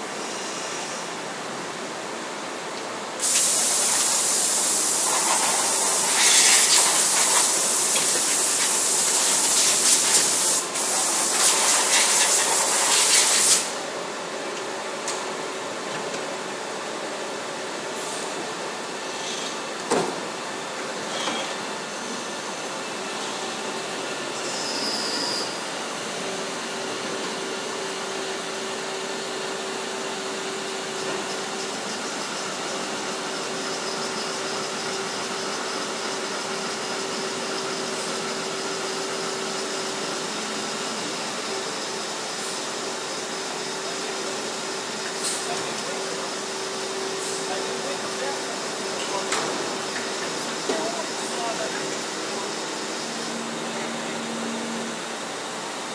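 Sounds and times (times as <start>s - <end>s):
brief hiss: 3.2s - 13.8s
industrial machines running: 25.4s - 55.9s.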